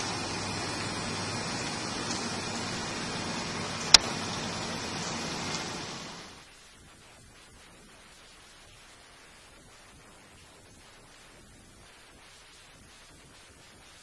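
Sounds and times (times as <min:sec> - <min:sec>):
steady hiss-like noise: 0:00.0 - 0:14.0
sharp click: 0:03.8 - 0:04.2.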